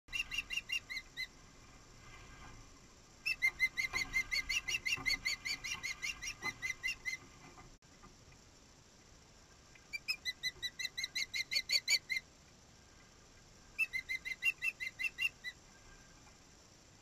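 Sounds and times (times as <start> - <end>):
osprey whistled chirps: 0.1 - 1.4, 3.2 - 7.2, 9.9 - 12.2, 13.8 - 15.6.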